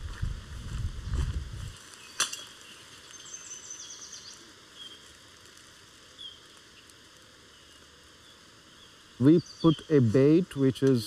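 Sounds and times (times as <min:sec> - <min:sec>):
songbird singing: 0:01.8 - 0:05.2, 0:06.0 - 0:11.0.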